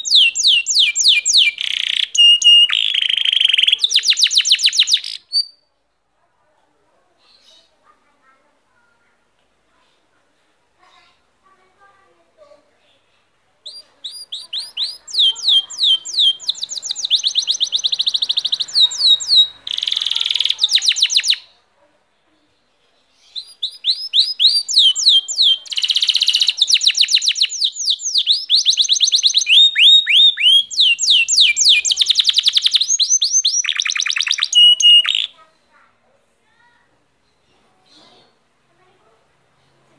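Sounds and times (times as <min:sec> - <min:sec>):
canary singing trills: 0:00.0 - 0:05.6, 0:13.6 - 0:21.6, 0:23.0 - 0:35.6.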